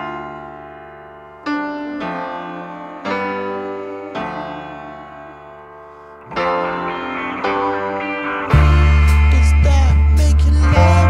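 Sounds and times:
slow sustained chords music: 2.2s - 11.0s.

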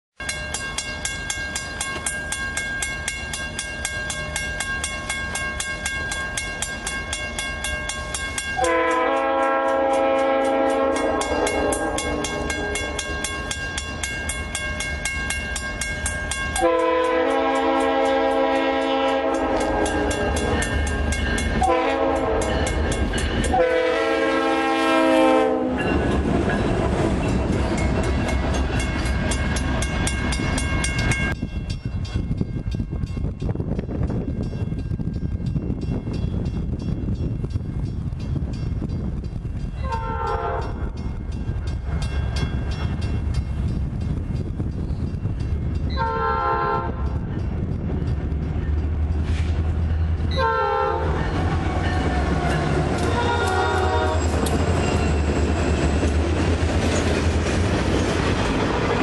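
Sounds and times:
low rumble of train: 0.2s - 59.0s
train air horn blasts: 8.6s - 13.2s, 16.5s - 20.6s, 21.5s - 25.9s, 39.8s - 41.0s, 45.9s - 47.2s, 50.3s - 54.6s.

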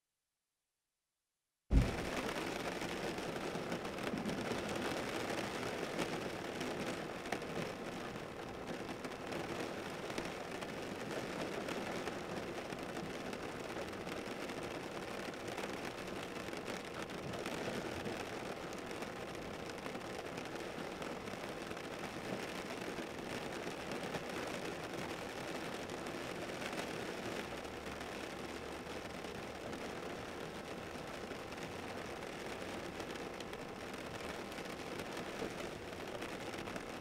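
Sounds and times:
short low thump: 1.7s - 2.3s
steady rushing noise: 1.7s - 2.7s
faint crackles: 1.7s - 37.0s.

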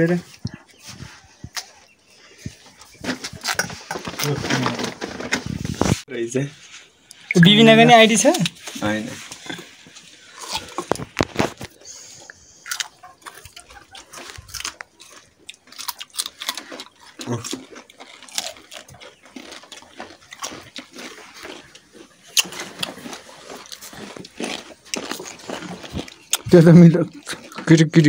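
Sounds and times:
person chewing raw cucumber: 1.4s - 4.3s, 9.4s - 28.0s.

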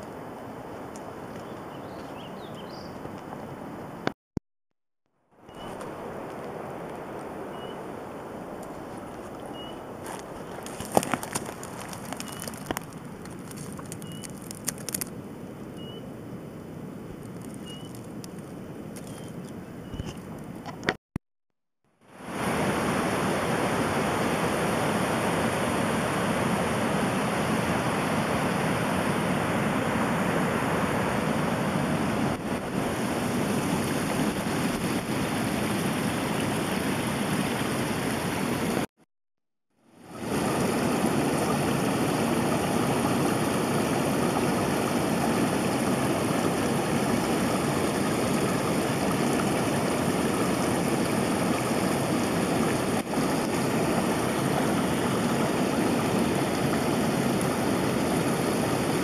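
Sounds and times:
flowing water rushing: 5.5s - 15.2s, 22.1s - 38.9s, 40.0s - 59.0s.

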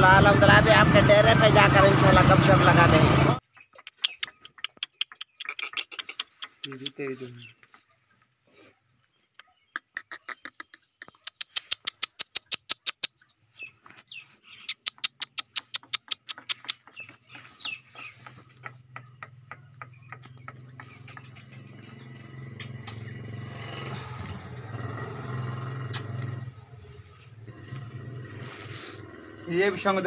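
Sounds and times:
bird chirping: 3.4s - 8.2s, 9.0s - 28.1s
rapid sharp clicks: 10.5s - 13.2s, 14.7s - 17.2s.

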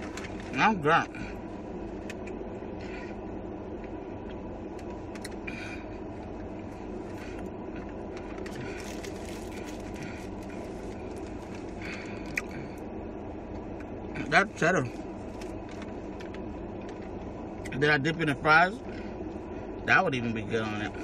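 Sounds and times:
car cabin hum and hiss: 0.0s - 21.0s.

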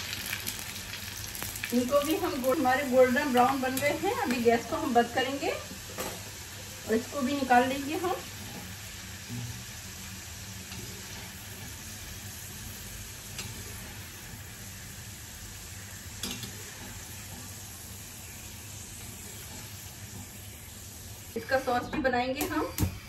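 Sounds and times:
corn sizzling in hot oil: 0.0s - 23.0s.

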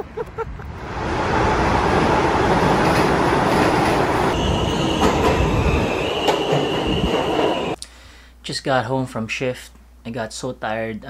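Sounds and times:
subway train rumble and rattle: 0.3s - 7.8s
high-pitched wheel squeal: 4.3s - 7.8s.

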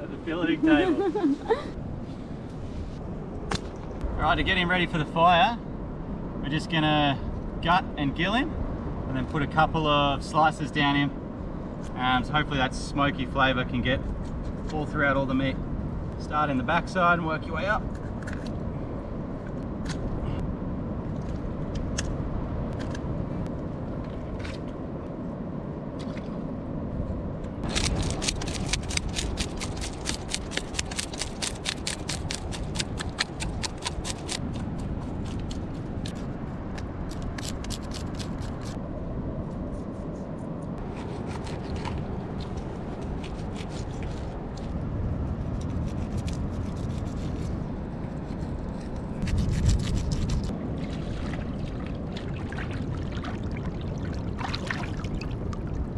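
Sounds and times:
wind: 0.0s - 55.9s
knife scraping fish: 40.9s - 44.3s.

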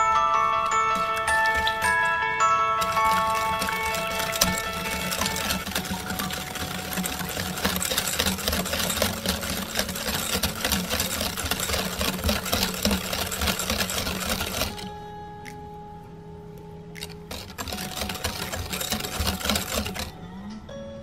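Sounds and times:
whisk clattering in glass bowl: 0.7s - 2.1s, 2.8s - 14.8s, 17.3s - 20.1s.

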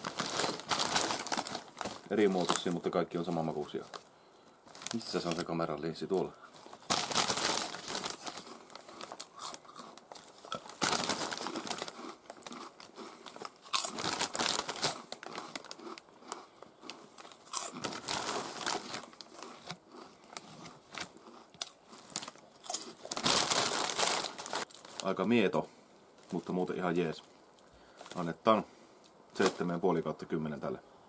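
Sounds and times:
snack bag crinkling: 0.0s - 4.1s, 4.7s - 25.3s
crunchy chips being chewed: 6.4s - 25.1s.

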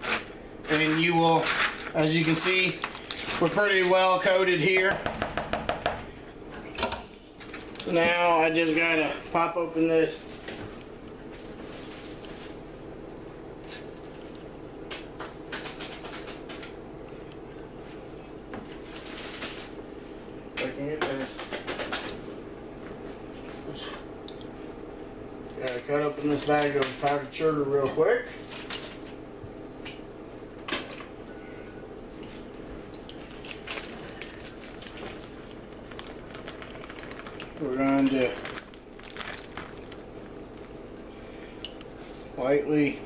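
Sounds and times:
steady low hum: 0.0s - 43.0s
paper bag crinkling: 11.3s - 12.7s, 33.3s - 40.4s.

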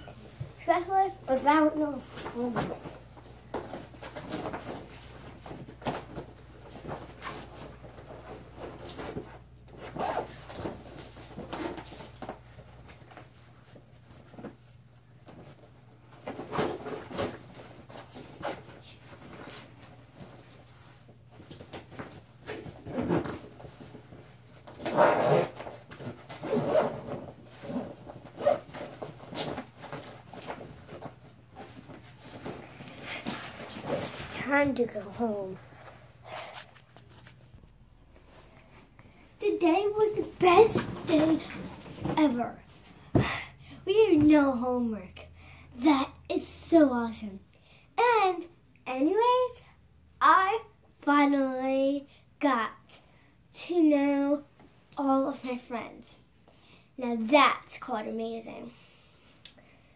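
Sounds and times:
cloth rustling: 0.2s - 42.9s.

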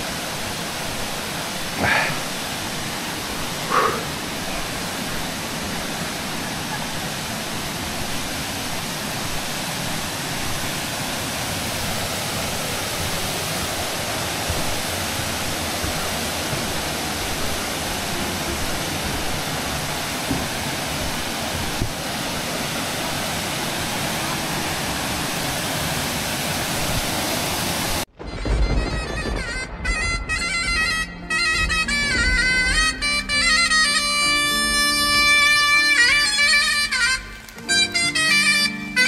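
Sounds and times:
waterfall pouring into pool: 0.0s - 28.1s.

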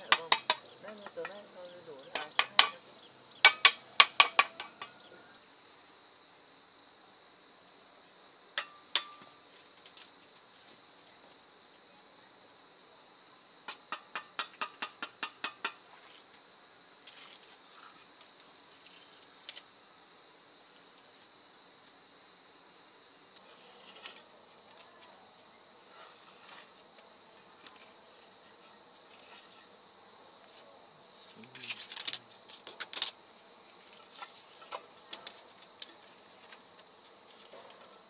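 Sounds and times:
trowel tapping bricks: 0.0s - 1.4s, 2.1s - 2.8s, 8.6s - 9.3s, 13.7s - 15.8s
high insect buzz: 0.0s - 38.0s.

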